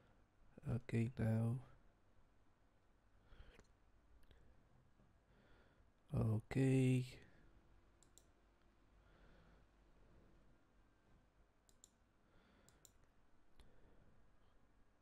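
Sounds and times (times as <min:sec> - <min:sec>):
computer mouse clicks: 0:08.0 - 0:08.4, 0:11.7 - 0:12.0, 0:12.6 - 0:13.7.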